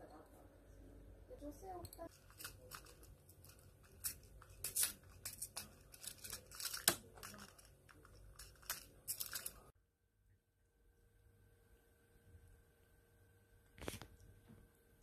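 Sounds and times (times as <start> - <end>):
crunching and crackling clicks: 2.1 - 9.7.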